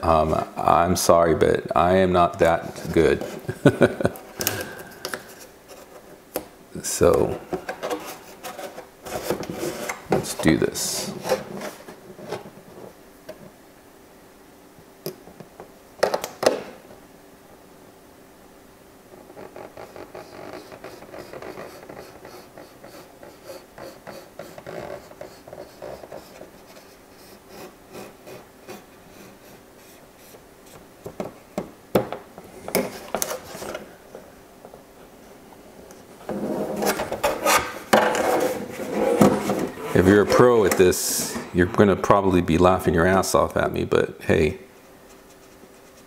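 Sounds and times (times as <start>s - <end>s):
plastic shell rustling and flexing: 36.2s - 41.8s.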